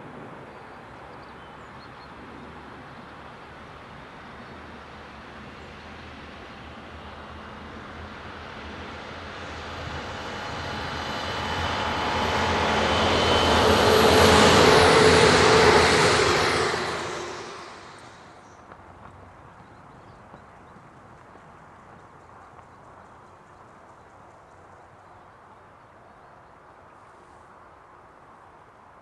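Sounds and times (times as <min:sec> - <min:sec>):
train passing at speed: 0:00.0 - 0:19.4
high whining tones: 0:10.4 - 0:18.3.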